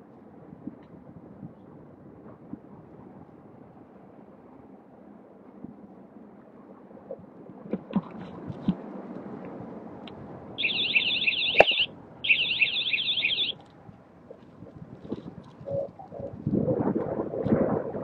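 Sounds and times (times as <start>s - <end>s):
wind and ride noise: 0.0s - 18.0s
electronic warbling alert tone: 10.6s - 13.5s.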